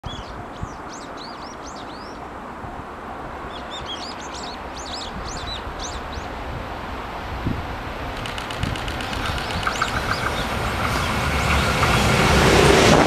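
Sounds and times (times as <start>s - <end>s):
distant freight train rumble: 0.4s - 13.0s
small birds chirping: 3.5s - 6.3s, 8.2s - 12.2s.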